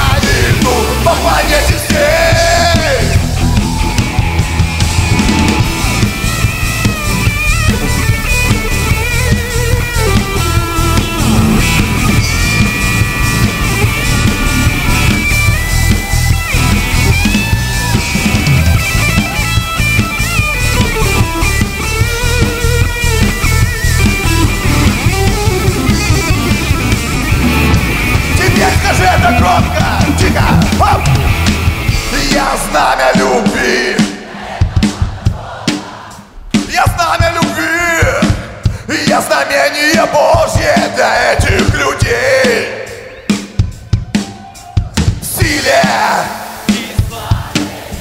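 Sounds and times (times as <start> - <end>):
electric guitars: 0.0 - 34.1
drum kit beat: 0.0 - 48.0
bending lead guitar melody: 2.3 - 33.5.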